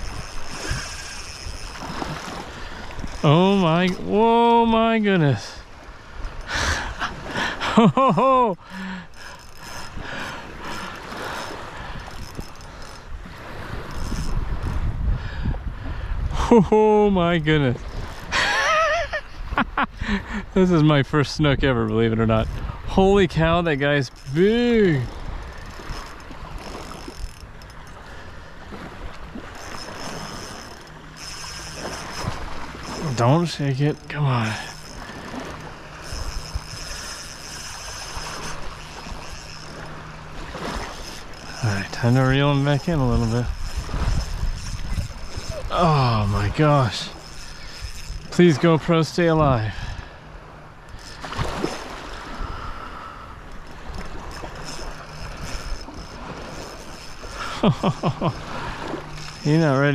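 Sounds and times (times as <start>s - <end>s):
wind buffeting microphone: 0.0s - 4.7s, 9.1s - 18.3s, 21.3s - 48.7s, 49.3s - 57.6s
shallow seawater lapping: 0.0s - 16.5s, 17.2s - 59.9s
surf water sloshing: 0.0s - 59.9s
water splash: 51.2s - 52.2s.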